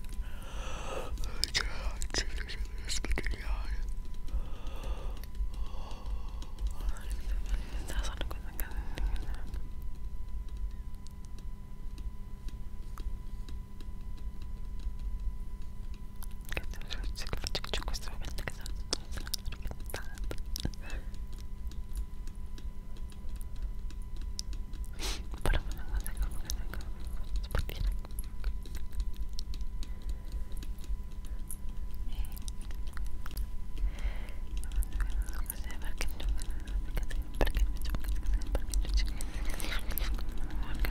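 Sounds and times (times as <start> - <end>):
electrical hum and whine: 0.0 - 40.9
whispering: 1.1 - 3.9, 6.6 - 9.6, 16.5 - 21.2, 25.3 - 28.2, 32.0 - 32.5, 34.6 - 40.9
crackling clicks: 1.1 - 40.9
wet mouth clicks: 15.9 - 40.9.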